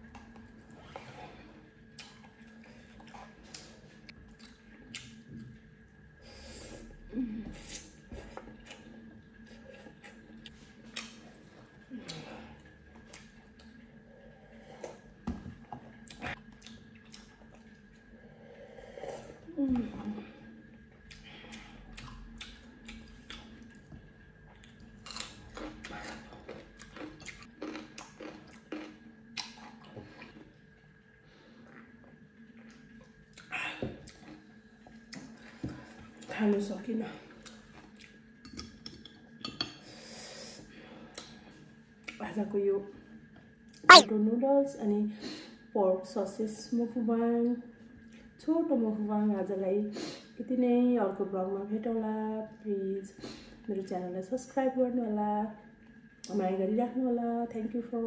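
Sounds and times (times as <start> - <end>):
chewing: 24.5 - 30.4.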